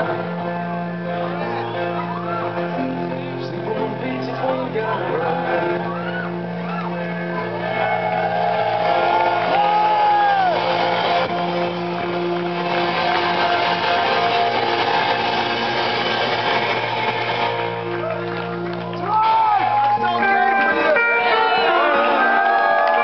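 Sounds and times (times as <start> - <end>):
electric guitar chords: 0.0 - 23.0
drums: 7.5 - 23.0.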